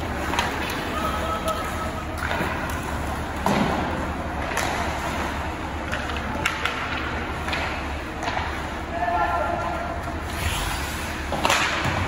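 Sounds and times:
hockey sticks and puck clacking: 0.0 - 8.8, 11.2 - 12.0
skates hissing on ice: 10.2 - 11.7.

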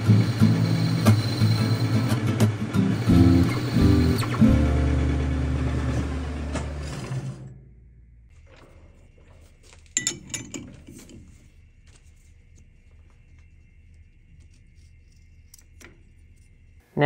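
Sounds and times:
music: 0.0 - 6.9.

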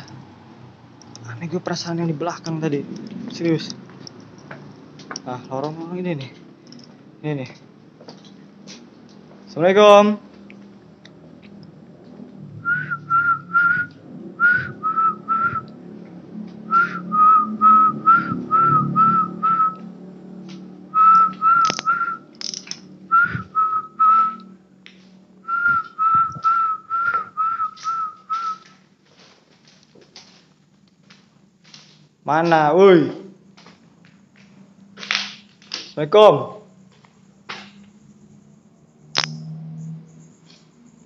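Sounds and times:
short whistled notes: 12.7 - 15.7, 21.0 - 22.2, 23.2 - 24.5, 25.5 - 28.8.

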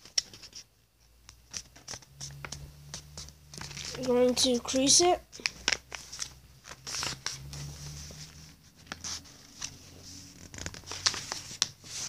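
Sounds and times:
paper being creased: 1.5 - 4.2, 5.4 - 12.0.

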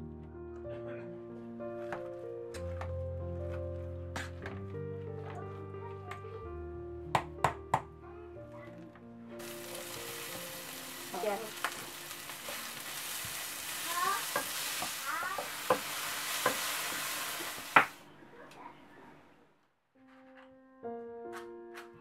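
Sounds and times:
peppers sizzling in a frying pan: 9.4 - 18.0
spatula tapping a pan: 14.2 - 16.7.

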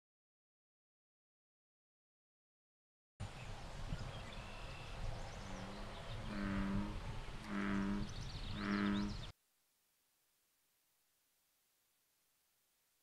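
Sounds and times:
outdoor ambience: 3.2 - 13.0
bullfrog calling: 5.5 - 9.3.

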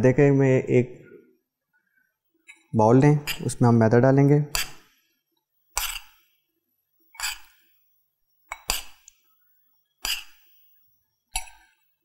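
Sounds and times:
metal spoon clinking on bowl: 2.5 - 3.6.

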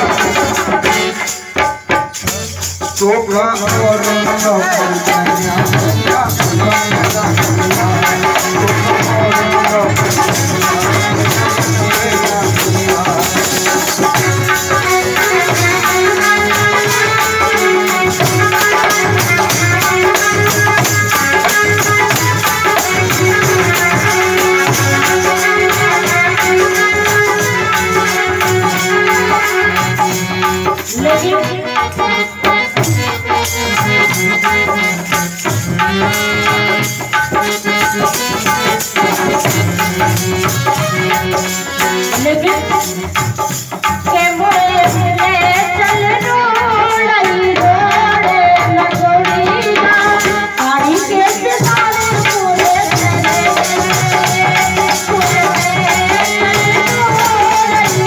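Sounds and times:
harmonium melody: 0.0 - 58.0
rattling hand percussion: 0.0 - 58.0.

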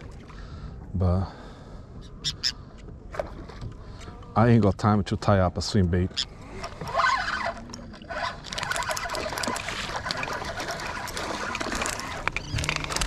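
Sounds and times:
water splashing and trickling: 3.1 - 4.0, 5.6 - 13.0.

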